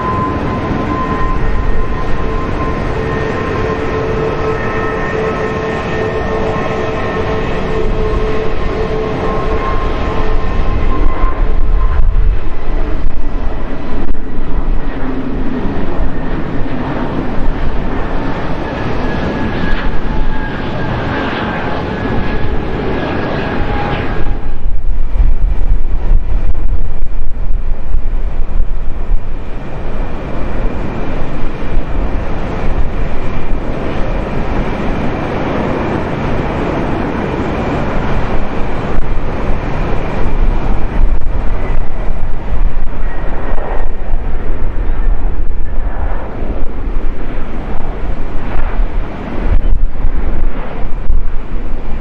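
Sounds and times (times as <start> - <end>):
faint steady whine: 0.0 - 52.0
jet engines rumbling: 0.0 - 52.0.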